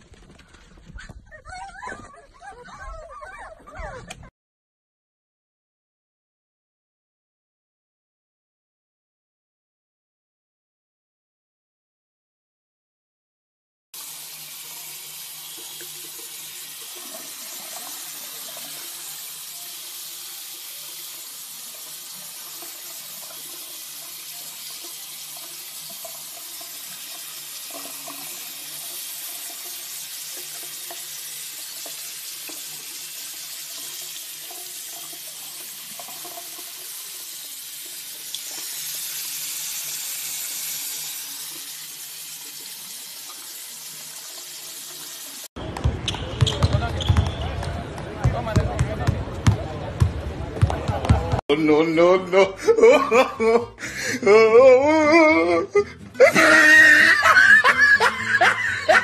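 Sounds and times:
tap water splashing: 0:15.5 - 0:18.9, 0:21.8 - 0:38.9.

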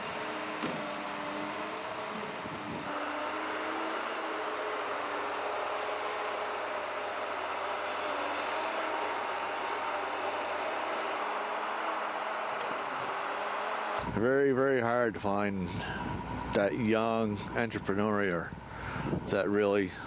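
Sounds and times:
heavy machine engine running: 0:00.0 - 0:14.3.

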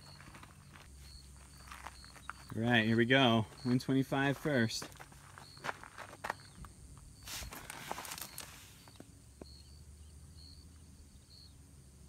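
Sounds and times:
faint rustles: 0:04.9 - 0:09.1.

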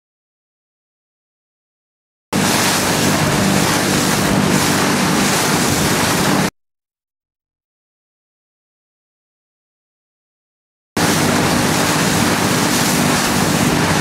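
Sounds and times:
choppy river water: 0:02.4 - 0:06.5, 0:11.0 - 0:14.0
low engine hum: 0:02.4 - 0:06.5, 0:11.0 - 0:14.0
wind buffeting microphone: 0:02.4 - 0:06.5, 0:11.0 - 0:14.0.

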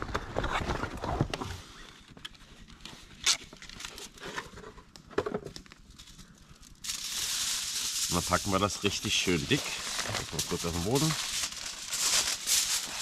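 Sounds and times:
faint rustling and handling: 0:00.6 - 0:13.0
aluminium foil crackling: 0:05.6 - 0:13.0.

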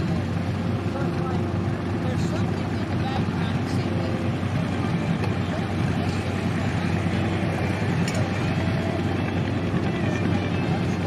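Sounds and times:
tractor engine running under load: 0:00.0 - 0:11.0.

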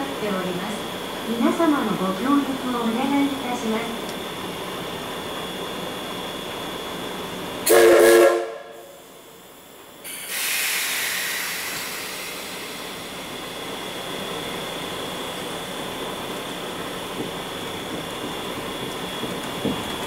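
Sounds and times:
steam whistle blast: 0:07.6 - 0:09.0
loud rush of hissing steam: 0:10.0 - 0:14.1.

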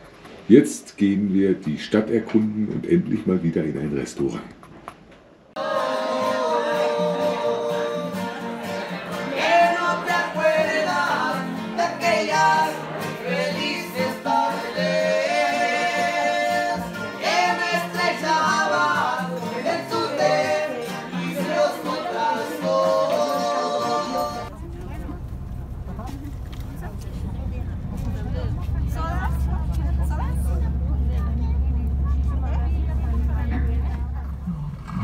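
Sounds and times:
man singing: 0:05.6 - 0:24.5
acoustic guitar: 0:05.6 - 0:35.0.

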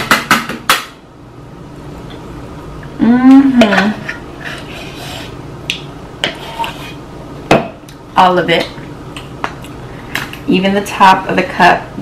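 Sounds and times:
woman humming: 0:02.9 - 0:04.0.

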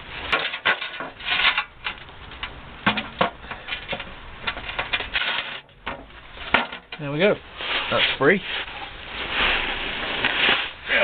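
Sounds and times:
hose twisted and pulled off pipe: 0:00.3 - 0:02.5.

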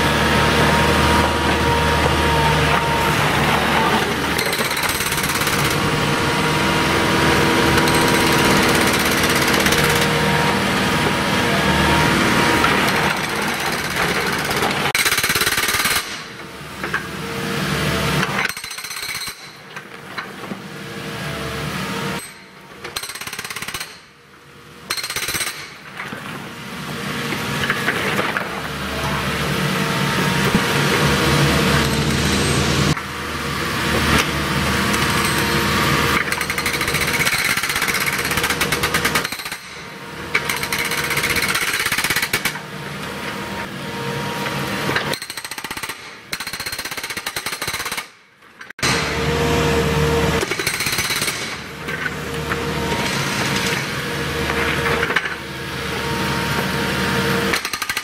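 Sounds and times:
machine engine running: 0:00.0 - 0:15.0, 0:28.6 - 0:37.2
hydraulic breaker hammering pavement: 0:00.0 - 0:17.1, 0:18.1 - 0:19.8, 0:24.9 - 0:26.2, 0:30.1 - 0:33.2, 0:33.9 - 0:43.7, 0:48.8 - 0:58.0.

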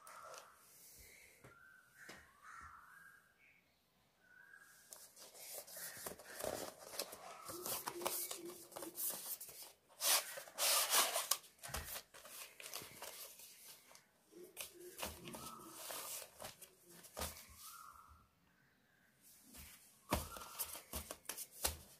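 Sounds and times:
cardboard box and plastic bag rustling: 0:14.6 - 0:17.8.

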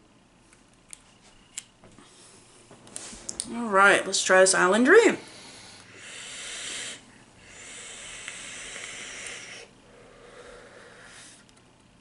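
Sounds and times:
electronic cigarette air hiss: 0:05.3 - 0:11.5.

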